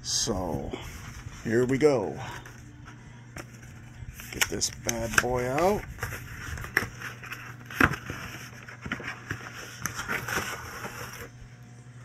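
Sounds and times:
packaging rustling and crackling: 0:03.4 - 0:11.4.

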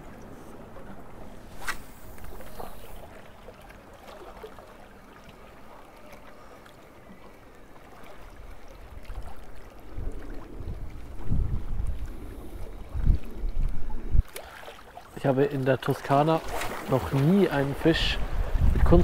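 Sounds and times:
sea waves washing: 0:00.0 - 0:19.0
wind buffeting microphone: 0:08.5 - 0:14.3, 0:16.9 - 0:19.0.

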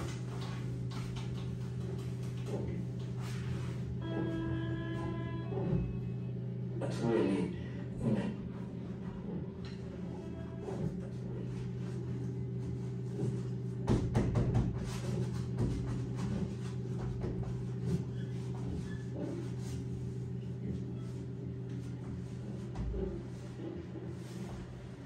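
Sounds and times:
low drone of held tones: 0:02.9 - 0:13.8.

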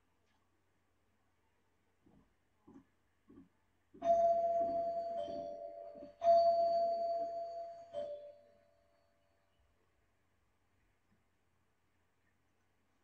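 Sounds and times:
two-tone doorbell chime: 0:04.0 - 0:09.2.

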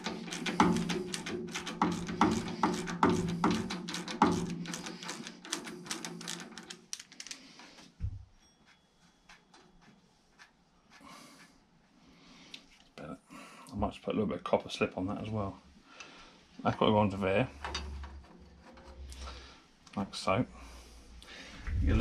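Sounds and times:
brush scrubbing metal sprocket: 0:00.0 - 0:07.9.

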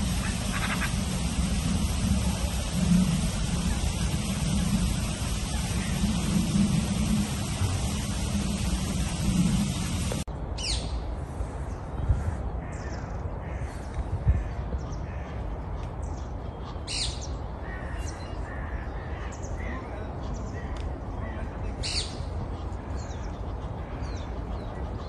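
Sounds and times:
low background rumble: 0:00.0 - 0:10.3
loud steady rush: 0:00.0 - 0:16.5.

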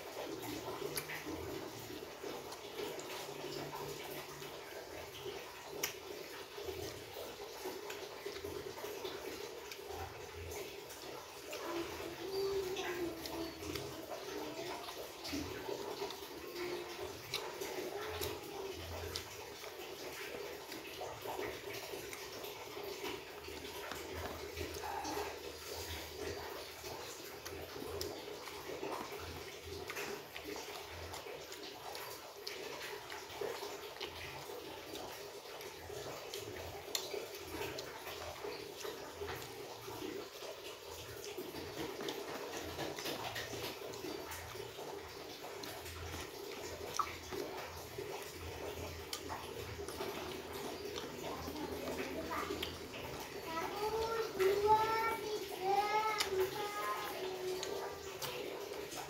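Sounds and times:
small clicks while eating: 0:00.0 - 0:59.0
wet chewing and smacking: 0:00.0 - 0:59.0.

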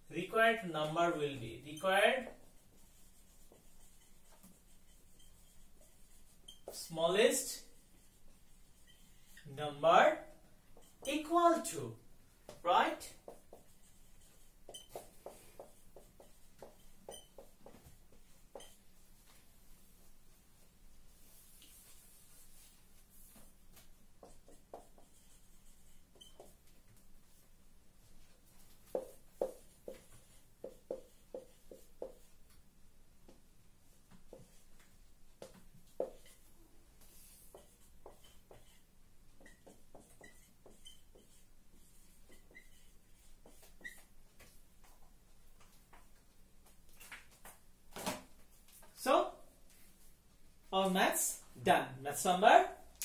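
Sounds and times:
marker pen writing on whiteboard: 0:00.2 - 0:20.4, 0:21.1 - 0:47.7
marker pen taps: 0:28.8 - 0:32.6.

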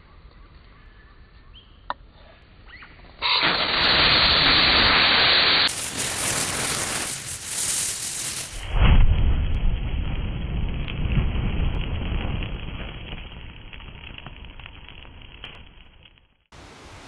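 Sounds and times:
fire igniting whoosh: 0:03.2 - 0:16.5
fire rushing: 0:03.2 - 0:17.0
deep whump of fireball: 0:08.5 - 0:15.4.

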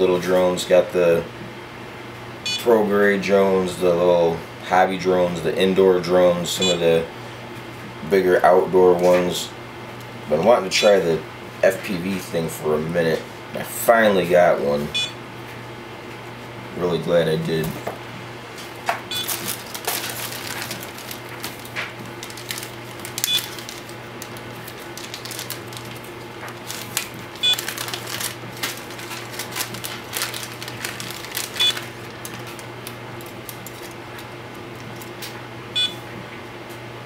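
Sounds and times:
short electronic beep: 0:02.5 - 0:02.7, 0:14.9 - 0:15.2, 0:35.8 - 0:36.0
plastic bag crinkling: 0:19.2 - 0:35.2.

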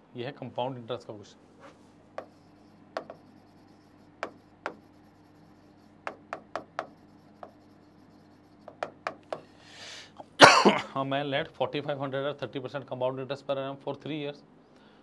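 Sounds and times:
stylus tapping on a screen: 0:02.2 - 0:03.4, 0:04.2 - 0:04.9, 0:06.0 - 0:07.6, 0:08.6 - 0:09.5.

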